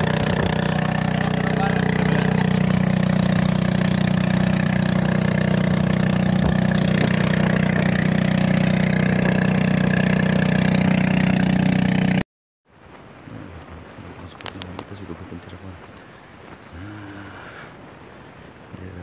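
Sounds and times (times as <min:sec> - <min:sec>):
boat motor running: 0:00.0 - 0:12.2.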